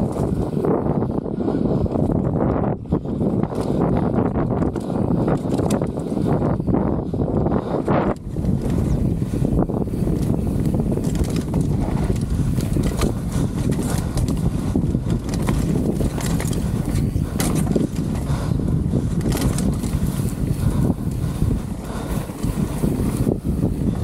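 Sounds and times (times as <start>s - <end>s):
bike clicking and rattling: 0.0s - 24.0s
wind rushing over microphone: 0.0s - 24.0s
tyres rumbling on dirt: 8.3s - 24.0s.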